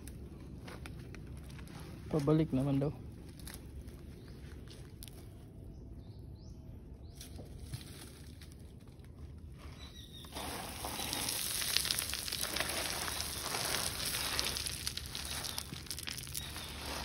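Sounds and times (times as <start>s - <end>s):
hand digging in loose soil: 7.3s - 17.0s.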